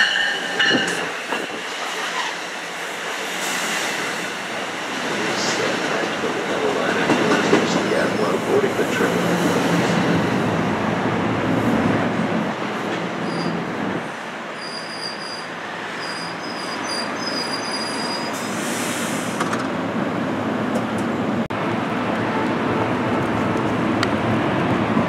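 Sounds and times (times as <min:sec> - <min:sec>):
passenger train rumbling by: 0:00.0 - 0:25.0
metallic wheel squeal: 0:14.6 - 0:18.4.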